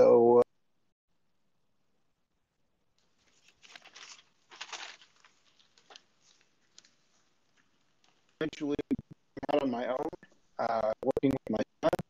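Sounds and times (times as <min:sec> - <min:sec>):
hand rustling on desk: 0:03.0 - 0:08.4.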